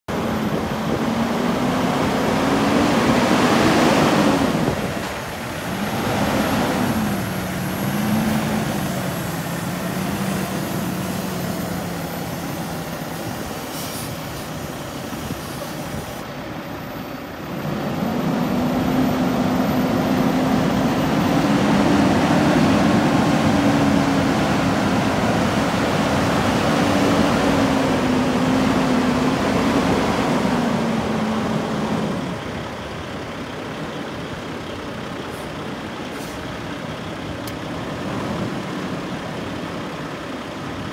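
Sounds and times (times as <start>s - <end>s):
diesel truck engine idling: 0.1s - 40.9s.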